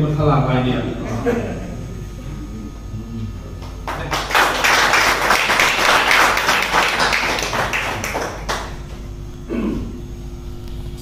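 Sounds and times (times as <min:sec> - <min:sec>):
audience applauding: 0:03.6 - 0:09.0.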